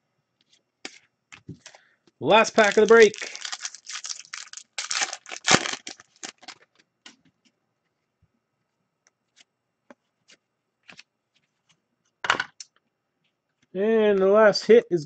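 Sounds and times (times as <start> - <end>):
card pack wrapper tearing: 2.4 - 6.7
cards clicking and rustling: 2.5 - 6.8.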